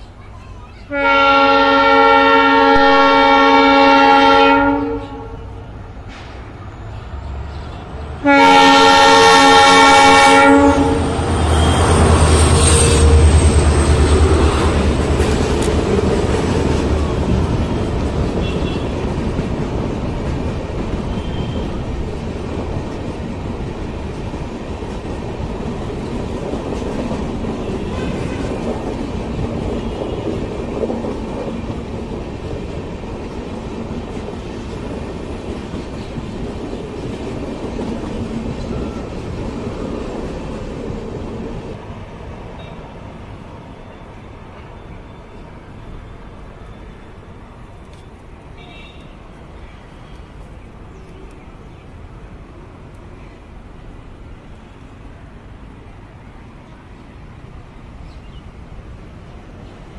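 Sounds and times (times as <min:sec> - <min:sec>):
train coaches clattering: 0:00.0 - 0:55.8
locomotive horn blasts: 0:00.9 - 0:05.6, 0:08.2 - 0:11.1, 0:18.4 - 0:19.0, 0:48.6 - 0:49.2
locomotive engine rumble: 0:05.0 - 0:28.0.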